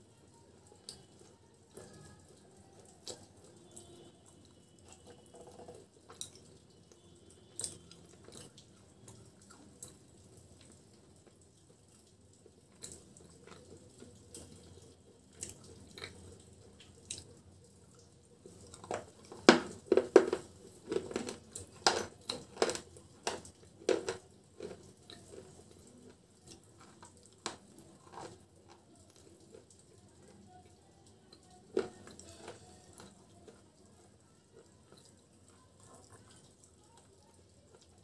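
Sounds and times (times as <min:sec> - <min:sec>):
crunching and chewing chips: 0:10.6 - 0:30.4, 0:31.3 - 0:38.0.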